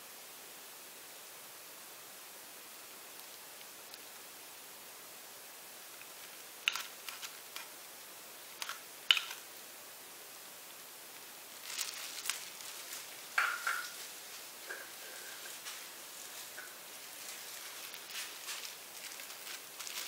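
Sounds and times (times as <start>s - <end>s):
faint hiss: 0.0s - 20.0s
plastic crinkling: 6.0s - 7.7s, 8.5s - 9.4s, 11.5s - 20.0s
plastic cups clicking: 6.6s - 7.7s, 8.6s - 9.4s.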